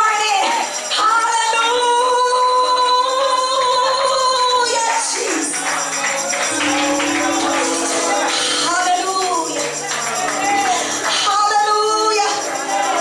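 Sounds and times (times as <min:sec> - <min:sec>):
tambourine shaking: 0:00.0 - 0:13.0
person singing long note: 0:06.5 - 0:09.2
low held instrument notes: 0:06.5 - 0:09.6.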